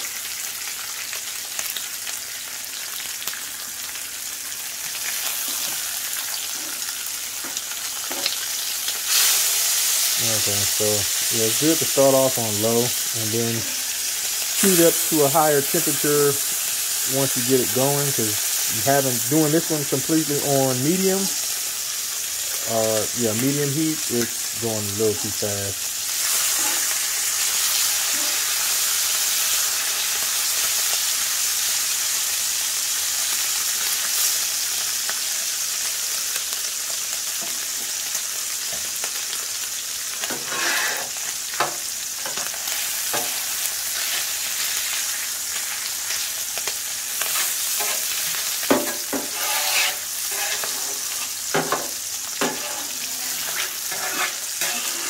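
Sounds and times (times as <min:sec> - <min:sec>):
bacon and onions sizzling: 0:00.0 - 0:55.0
metal spatula scraping griddle: 0:26.3 - 0:26.9, 0:40.3 - 0:41.3, 0:47.2 - 0:51.8, 0:52.4 - 0:55.0.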